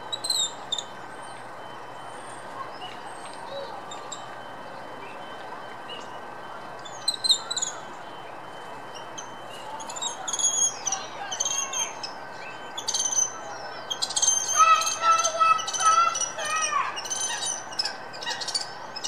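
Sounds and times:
monkey squeaky calls: 13.9 - 18.7.

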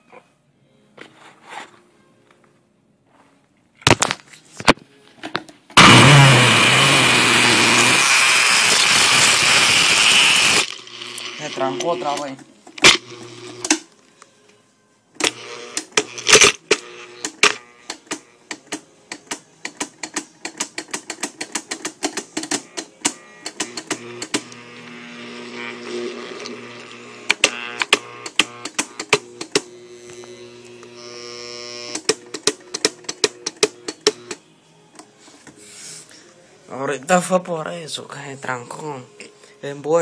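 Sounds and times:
blender motor humming: 5.8 - 12.2, 12.8 - 13.8, 15.2 - 18.4, 22.6 - 34.4.

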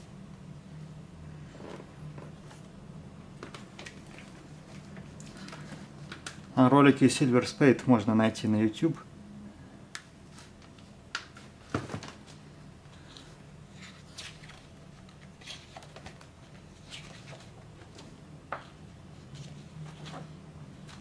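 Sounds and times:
book pages rustling: 3.4 - 6.5, 13.0 - 21.0.

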